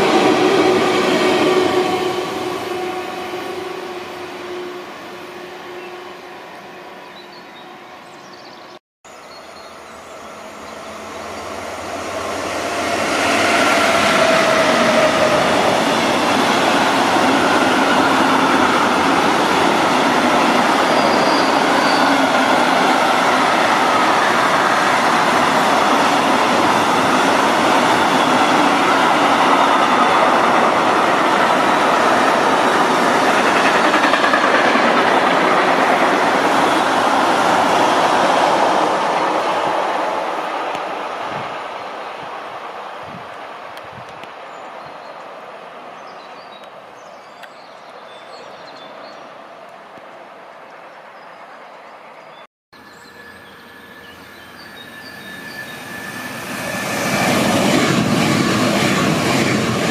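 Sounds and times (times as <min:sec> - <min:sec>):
freight train wheels on rails: 0:00.0 - 0:05.8, 0:09.9 - 0:44.8, 0:53.0 - 0:59.9.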